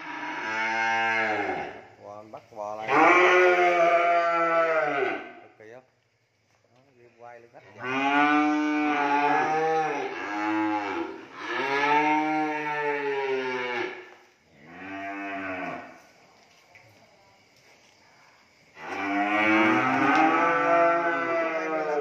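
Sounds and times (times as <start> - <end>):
young cattle mooing: 0.0 - 1.7, 2.9 - 5.3, 7.8 - 14.0, 18.8 - 22.0.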